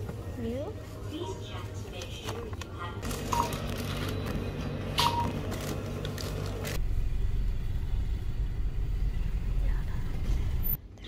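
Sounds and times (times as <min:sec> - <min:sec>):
shop background noise: 0:00.0 - 0:06.8
low rumble inside a car: 0:04.2 - 0:10.8.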